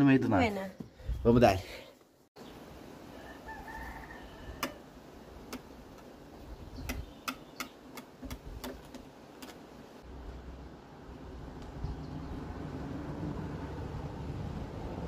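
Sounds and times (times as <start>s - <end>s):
sharp clicks and taps: 6.8s - 9.6s.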